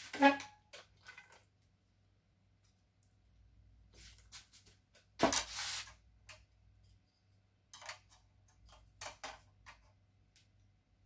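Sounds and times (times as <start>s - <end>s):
plastic parts clicking and tapping: 7.6s - 10.7s.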